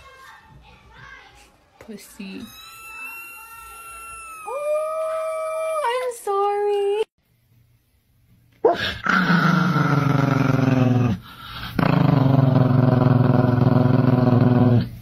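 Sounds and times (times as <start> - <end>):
small dog growling: 8.7 - 14.9.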